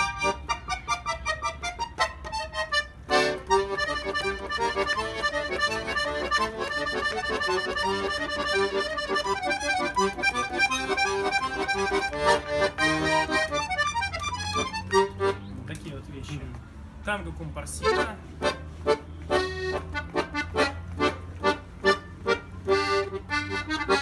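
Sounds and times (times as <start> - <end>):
button accordion playing: 0.0 - 15.5, 17.8 - 24.0.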